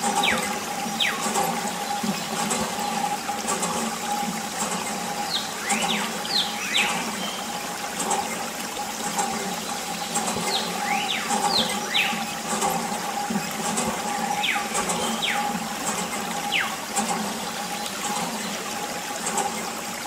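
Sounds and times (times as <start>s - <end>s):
gliding whistling chirps: 0.0s - 3.2s, 4.8s - 7.6s, 9.6s - 13.2s, 14.0s - 18.6s
pump motor humming: 0.0s - 20.0s
water splashing and trickling: 0.0s - 20.0s.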